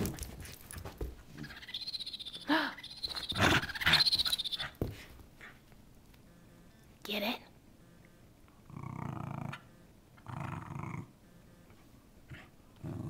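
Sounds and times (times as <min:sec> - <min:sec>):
toy electronic chirping trill: 0:01.5 - 0:04.7.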